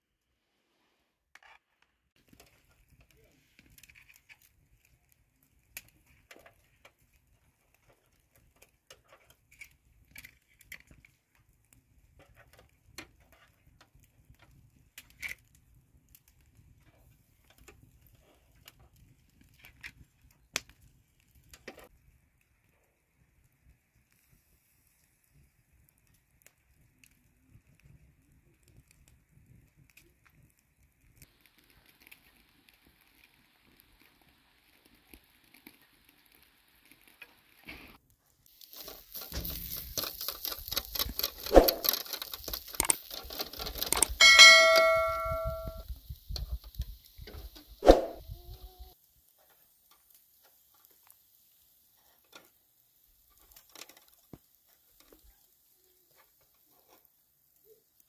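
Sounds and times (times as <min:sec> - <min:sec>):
meat sizzling: 0:38.4 - 0:44.2, 0:45.8 - 0:58.0
metal skewers clinking: 0:44.2 - 0:45.8
metal strike ringing like a bell: 0:44.2 - 0:45.8.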